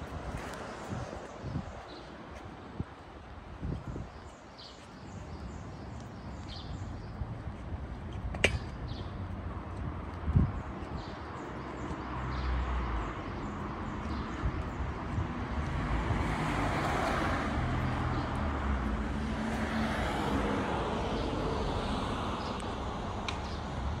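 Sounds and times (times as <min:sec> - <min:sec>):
road traffic passing: 0:04.3 - 0:24.0.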